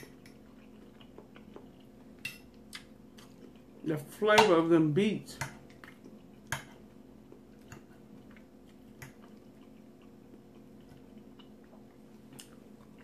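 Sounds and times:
quiet chewing: 0.0s - 3.8s, 5.5s - 13.0s
faint steady hum: 0.0s - 13.0s.

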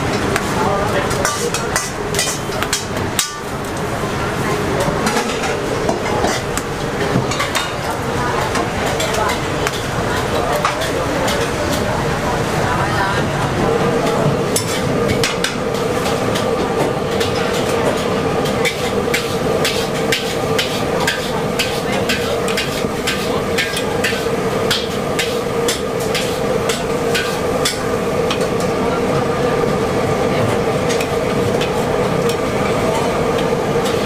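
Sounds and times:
steady hum: 0.0s - 34.0s
spatula clanking against wok: 1.1s - 3.5s.

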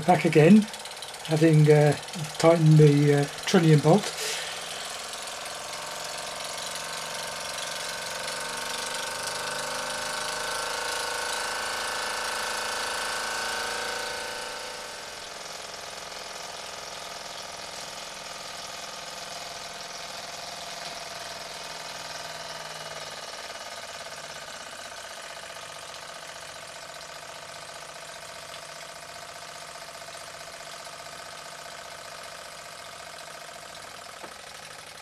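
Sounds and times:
whir of spinning flywheel: 0.0s - 35.0s
hiss of steam: 4.0s - 4.8s.

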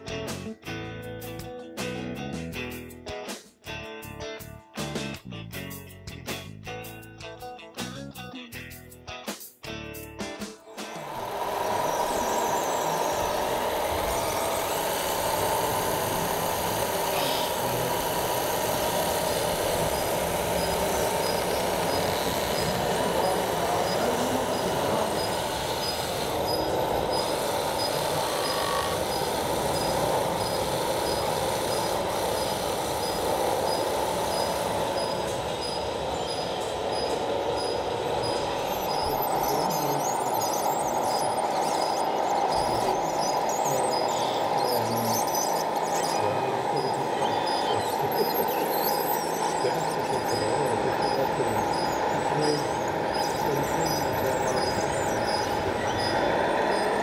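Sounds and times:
hydraulic pumps: 10.7s - 57.0s
small electric motors whining: 10.7s - 57.0s
high-pitched beeping: 10.9s - 57.0s.

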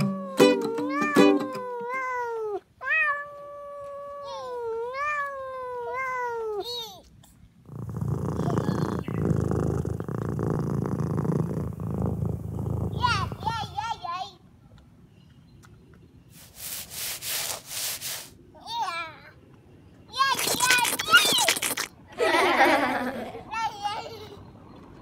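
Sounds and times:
wavering cat calls: 0.0s - 6.7s
steady low rumbling: 7.7s - 13.8s.

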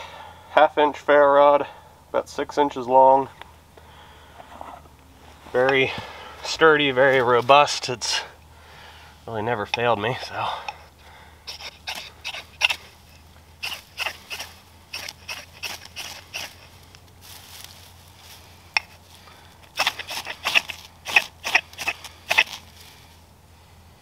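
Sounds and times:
knife scraping ferro rod: 11.5s - 16.7s, 19.7s - 22.7s.

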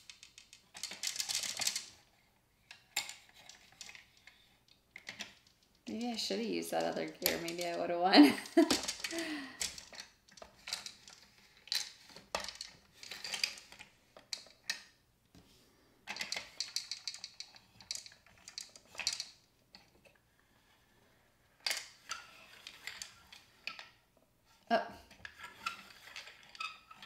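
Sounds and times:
plastic tokens clattering: 0.0s - 2.0s, 2.7s - 14.9s, 16.1s - 19.9s, 21.6s - 23.9s
plastic gears clicking and rattling: 0.0s - 2.1s, 2.7s - 15.0s, 16.1s - 20.1s, 21.6s - 24.0s, 25.1s - 27.0s.

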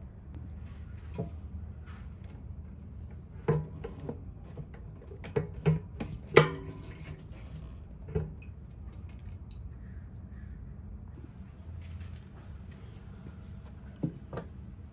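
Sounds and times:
steel fuel tank knocking: 3.2s - 7.2s.

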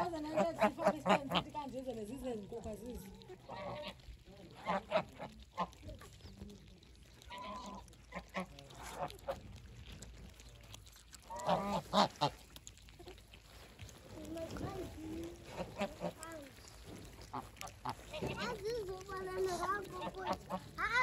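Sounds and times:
geese honking: 3.4s - 4.0s, 4.6s - 5.8s, 7.3s - 9.4s, 11.3s - 12.5s.

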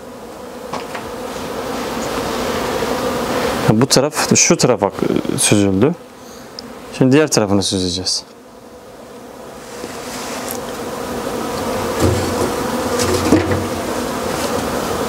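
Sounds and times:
honey extractor whirring: 9.4s - 15.0s.

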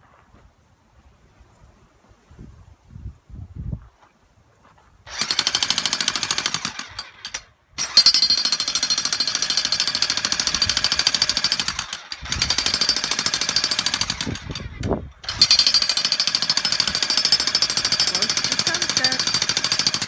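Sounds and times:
jackhammer hammering into gravel: 5.1s - 20.0s.

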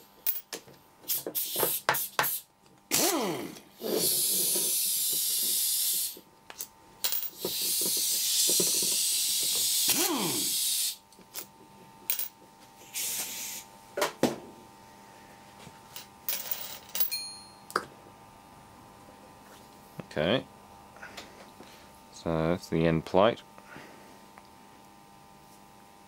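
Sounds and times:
metal parts clinking on bench: 0.2s - 0.6s, 5.9s - 8.0s, 12.1s - 12.4s, 15.9s - 17.6s
pneumatic impact wrench air hiss: 1.0s - 6.2s, 7.3s - 11.0s, 12.8s - 13.7s.

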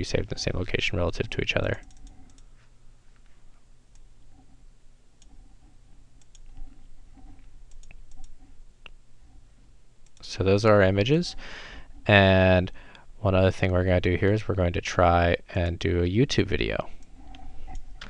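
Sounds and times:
low steady hum: 0.0s - 18.0s
computer mouse clicks: 1.8s - 2.5s, 6.2s - 6.9s, 7.7s - 9.0s, 17.0s - 18.0s.

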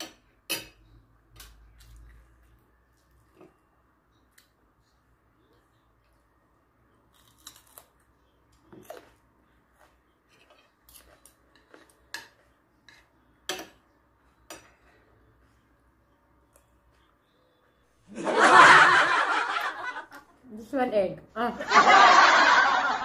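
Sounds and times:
cutlery scraping on a plate: 10.2s - 13.8s.

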